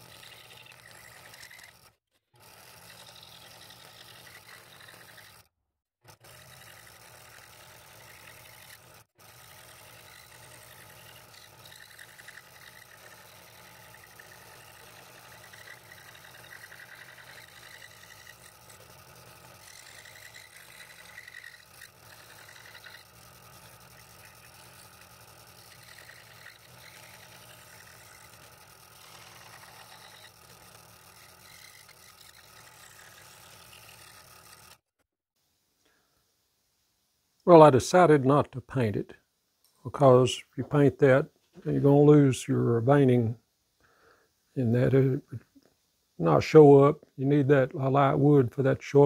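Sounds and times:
scroll saw cutting wood: 0.0 - 35.0.

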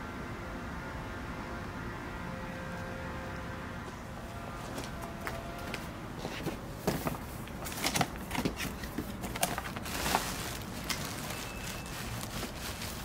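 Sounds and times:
plastic bag crinkling: 7.7 - 13.0.

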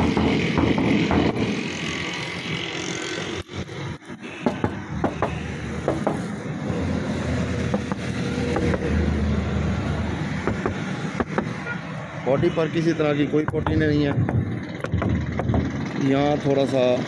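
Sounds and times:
knuckles tapping on steel panels: 4.4 - 6.3, 7.7 - 8.9, 10.4 - 11.6, 13.4 - 15.8.

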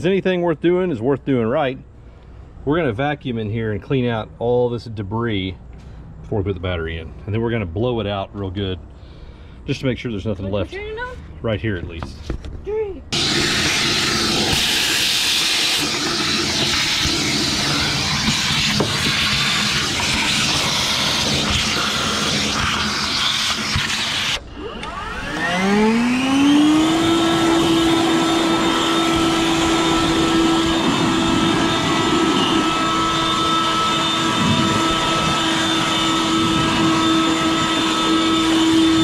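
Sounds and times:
blower motor high whine: 13.1 - 39.0
shop vacuum running: 13.1 - 39.0.

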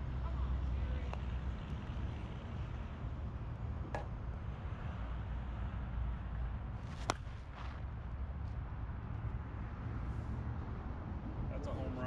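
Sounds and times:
bat cracking ball: 6.8 - 7.8.

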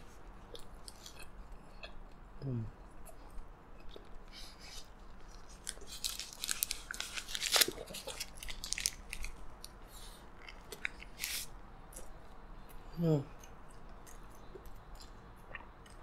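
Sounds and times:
burger chewing crunches: 3.9 - 9.4
paper wrapper crinkling: 5.2 - 9.4.

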